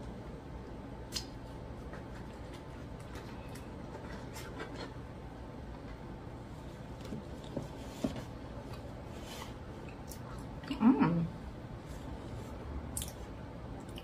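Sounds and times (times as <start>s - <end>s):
soft chewing: 1.1s - 5.0s, 8.6s - 10.8s.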